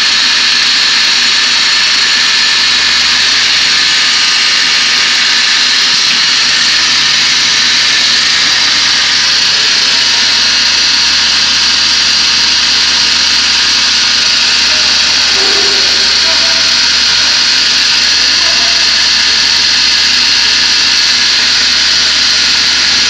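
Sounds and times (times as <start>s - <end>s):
router high-pitched whine: 0.0s - 23.0s.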